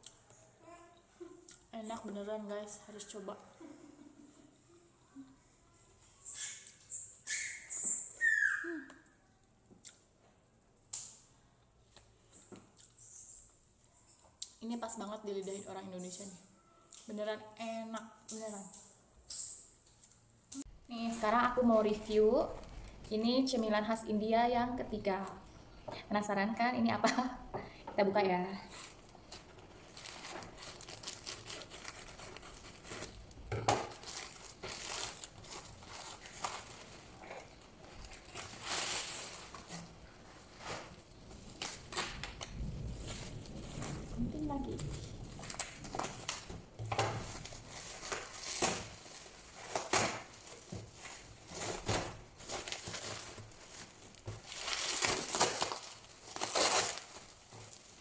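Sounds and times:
plastic bag crinkling and rustling: 0:21.0 - 0:23.8, 0:28.6 - 0:58.0.

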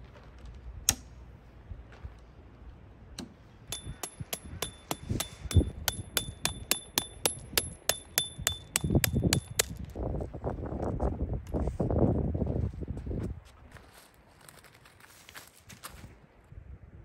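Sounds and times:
hammer striking tent peg: 0:00.9 - 0:01.1, 0:03.2 - 0:09.8.

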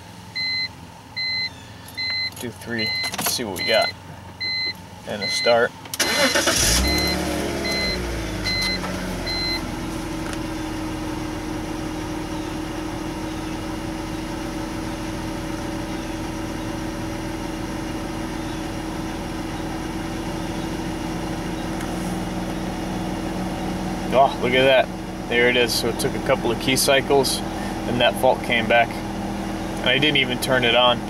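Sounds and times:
car engine starting and idling: 0:00.0 - 0:31.0
car warning chime beeping: 0:00.3 - 0:09.8.

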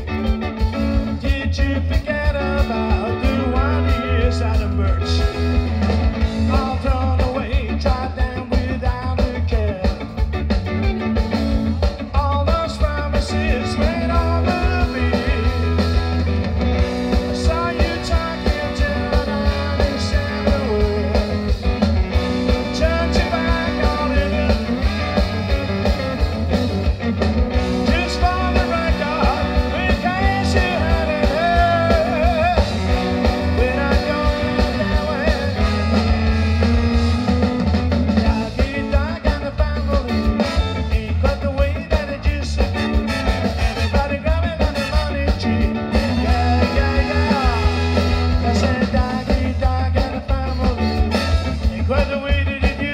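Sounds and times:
bass guitar: 0:00.0 - 0:52.9
drum kit: 0:00.0 - 0:52.9
electric guitar: 0:00.0 - 0:52.9
horn section: 0:13.4 - 0:26.8, 0:27.5 - 0:38.6, 0:40.0 - 0:41.2, 0:42.6 - 0:49.3, 0:50.5 - 0:52.0.

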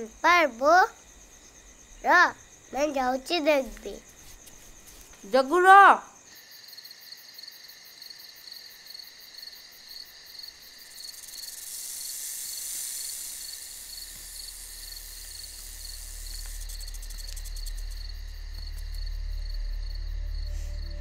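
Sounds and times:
crickets chirping: 0:00.0 - 0:21.0
low rumble: 0:16.9 - 0:21.0.

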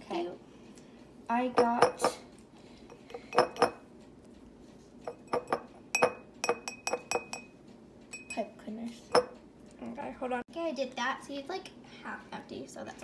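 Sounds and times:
taps on glass jar: 0:03.3 - 0:03.8, 0:05.1 - 0:07.5.

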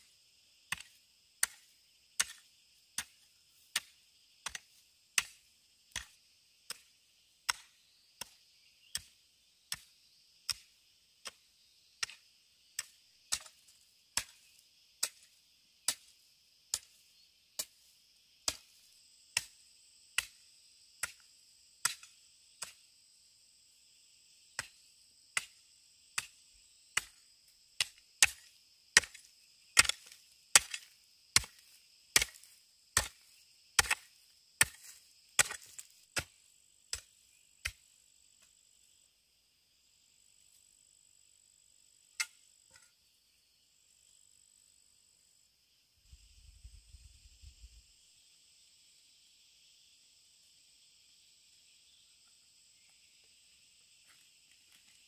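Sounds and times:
hand tool chopping strokes: 0:03.0 - 0:06.8, 0:27.8 - 0:29.2, 0:29.8 - 0:37.8.

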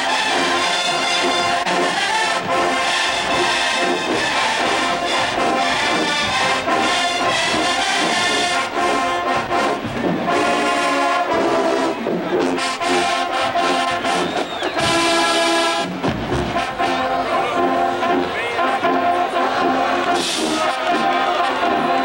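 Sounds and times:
drums: 0:00.0 - 0:17.2
brass section playing a tune: 0:00.0 - 0:22.0.

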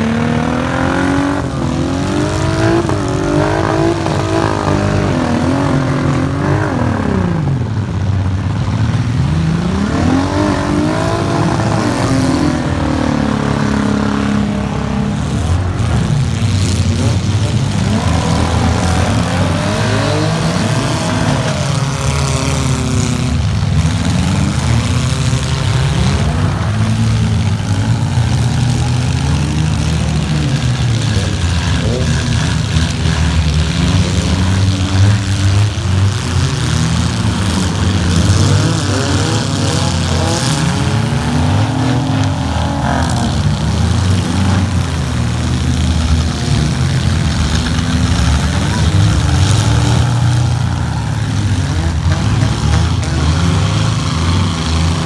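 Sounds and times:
car engines revving: 0:00.0 - 0:55.0
cars knocking together: 0:15.2 - 0:55.0.

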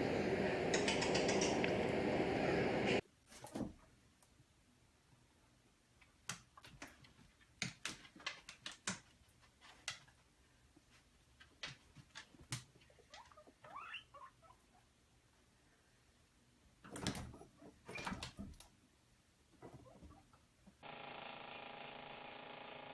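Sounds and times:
guinea pig squeaky calls: 0:13.0 - 0:14.9.

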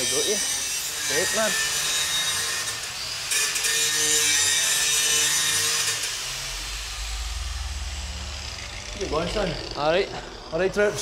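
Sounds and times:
low hum: 0:05.8 - 0:11.0.

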